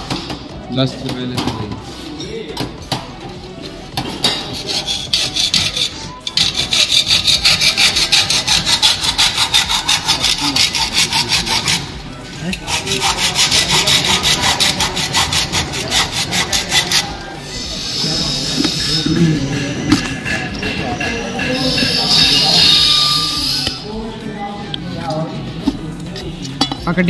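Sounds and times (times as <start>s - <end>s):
hacksaw cutting steel tube: 4.2s - 17.2s, 17.8s - 23.8s.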